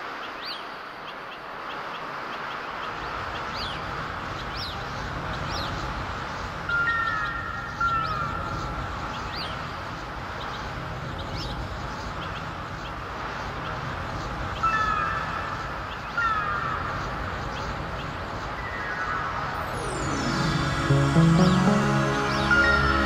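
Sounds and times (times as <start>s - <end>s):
song intro music: 19.0s - 23.0s.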